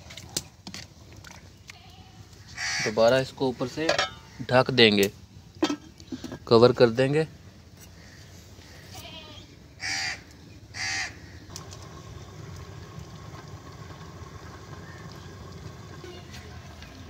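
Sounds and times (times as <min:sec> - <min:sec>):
crow cawing: 0:02.4 - 0:03.0, 0:08.0 - 0:08.9, 0:09.8 - 0:11.5, 0:14.8 - 0:15.1
low steady rumble: 0:11.2 - 0:17.0.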